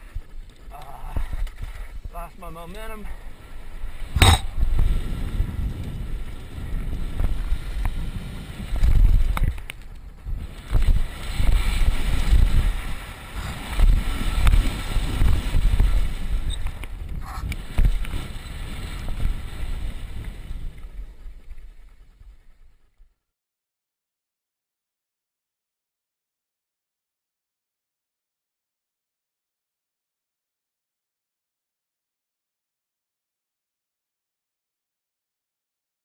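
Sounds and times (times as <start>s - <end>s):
bike clicks and rattles: 0.0s - 2.1s, 3.2s - 23.2s
tyre rumble on dirt trail: 0.0s - 22.5s
wind buffeting microphone: 0.0s - 22.8s.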